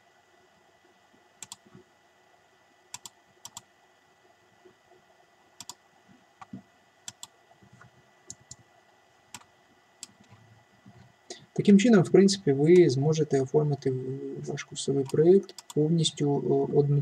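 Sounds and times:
keyboard clicks: 1.4 - 1.6, 2.9 - 3.7, 5.6 - 5.8, 6.4 - 7.3, 15.0 - 15.8
computer mouse clicks: 1.4 - 1.8, 2.9 - 3.7, 5.6 - 5.8, 6.4 - 8.6, 15.0 - 15.8.

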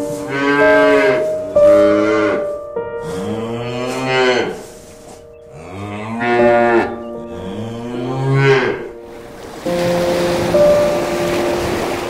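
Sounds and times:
cow mooing: 0.0 - 9.0.

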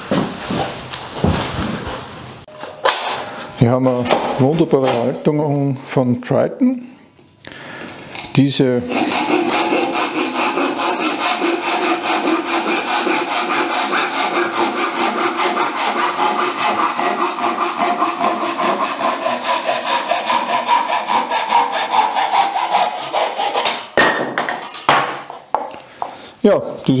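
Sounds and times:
hand saw cutting wood: 8.7 - 24.0.

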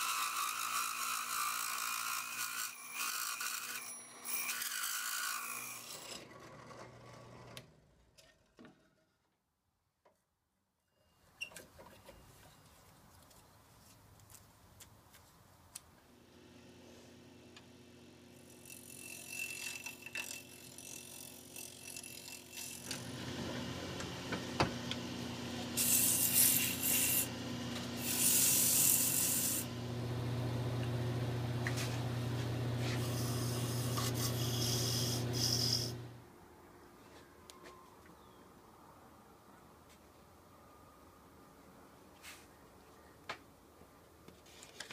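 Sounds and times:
wood lathe motor running: 17.5 - 36.2
sandpaper hissing on turning wood: 25.8 - 27.3, 28.0 - 29.7, 32.8 - 36.0.

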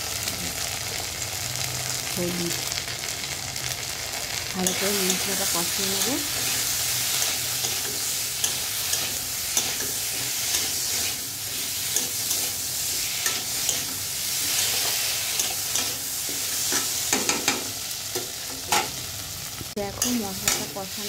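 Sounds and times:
food sizzling in oil: 0.0 - 21.0
metal spatula scraping pan: 4.6 - 17.7.

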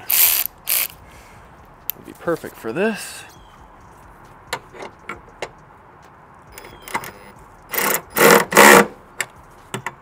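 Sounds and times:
loud rasping bursts: 0.0 - 1.0, 7.7 - 9.0.

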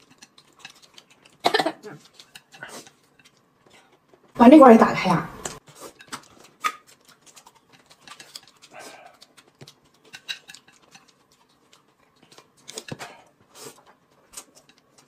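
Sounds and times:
chewing: 0.0 - 4.4, 5.5 - 15.0.

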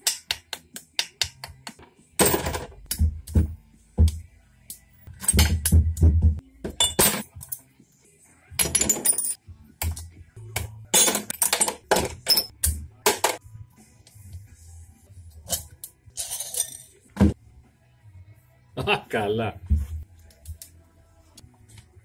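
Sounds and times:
background music: 0.0 - 22.0
metal tools clinking: 8.6 - 9.4, 11.0 - 12.5, 15.5 - 17.0.

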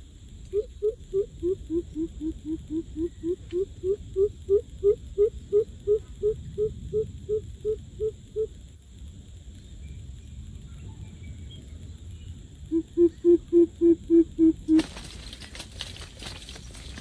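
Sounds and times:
bird deep hooting calls: 0.5 - 8.5, 12.7 - 14.8
rustling and scuffling: 14.8 - 17.0.

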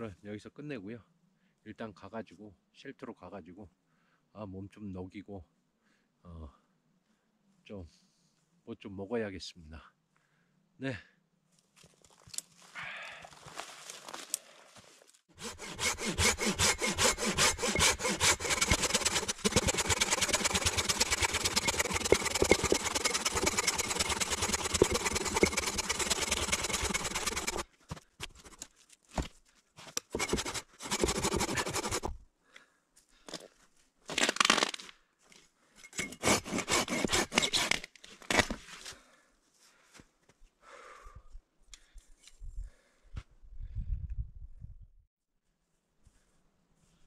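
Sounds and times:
saw cutting wood: 15.3 - 27.6, 28.2 - 28.6, 30.0 - 32.1, 36.0 - 38.5.

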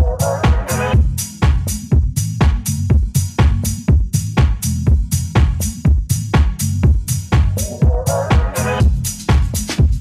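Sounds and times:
bassline: 0.0 - 10.0
kick drum: 0.0 - 10.0.

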